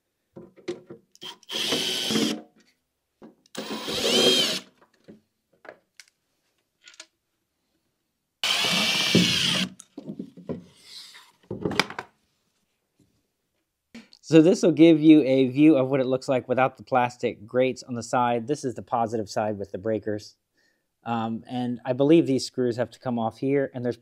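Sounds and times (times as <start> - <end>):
cordless drill motor: 1.2 - 2.4, 3.6 - 4.7, 8.4 - 9.8
clicks and knocks of handling: 4.8 - 7.2.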